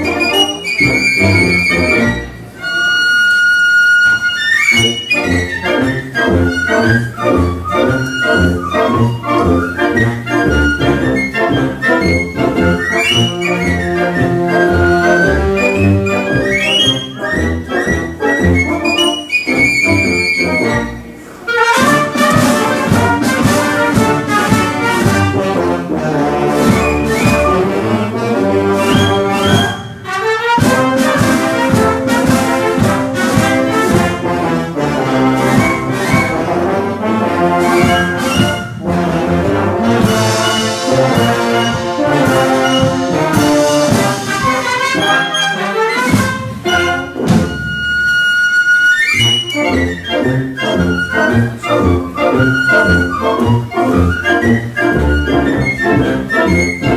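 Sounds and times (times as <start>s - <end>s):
wind band playing: 0.0s - 56.9s
piccolo high notes: 40.0s - 46.2s.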